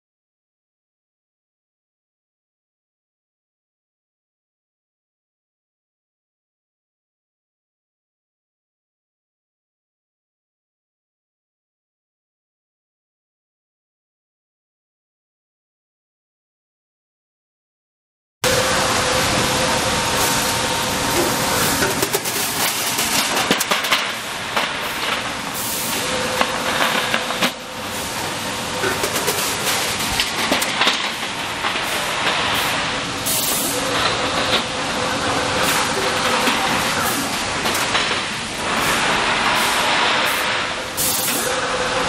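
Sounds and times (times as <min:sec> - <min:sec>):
machinery din: 0:18.4 - 0:40.8
short hissing bursts: 0:31.9 - 0:33.8.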